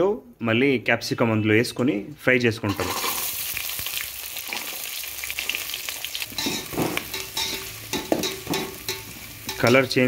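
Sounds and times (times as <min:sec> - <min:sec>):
metal spoon scraping pot: 0:02.7 - 0:03.3, 0:06.3 - 0:09.8
onions sizzling in oil: 0:02.7 - 0:10.0.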